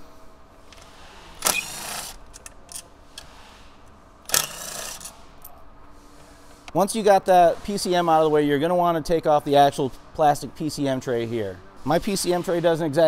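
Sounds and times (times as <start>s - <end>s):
ratchet ratcheting: 4.3s - 5.2s.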